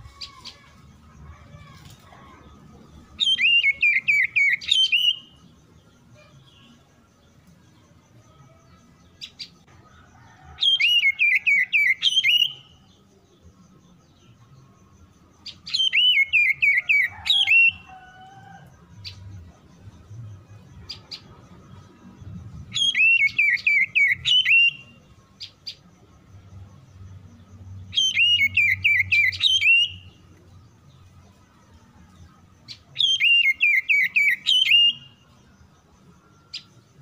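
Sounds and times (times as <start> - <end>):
bird singing whistles: 3.2 - 5.4, 10.6 - 12.8, 15.5 - 17.9, 22.7 - 25.0, 27.9 - 30.2, 32.7 - 35.2.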